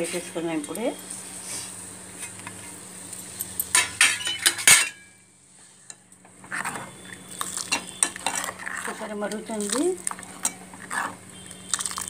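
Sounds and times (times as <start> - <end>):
ladle stirring in metal pot: 5.9 - 12.0.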